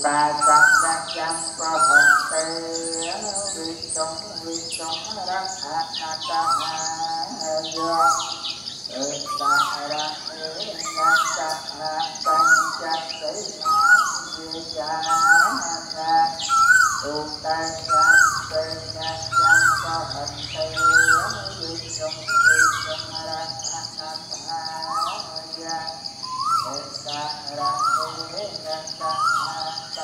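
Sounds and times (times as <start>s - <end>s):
steady high-pitched bird trill: 0.0s - 30.0s
bird rising call: 16.4s - 17.1s, 17.7s - 23.0s.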